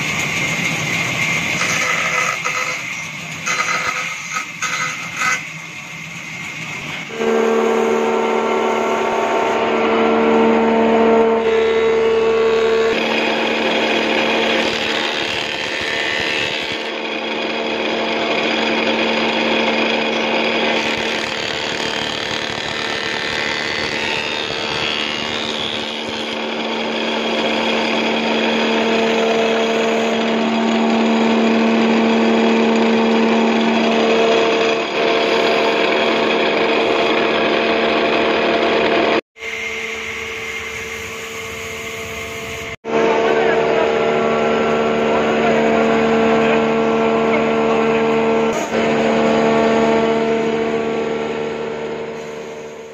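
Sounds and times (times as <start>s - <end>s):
woodworking machine humming: 0.0s - 52.9s
cutter head cutting wood: 12.5s - 37.9s.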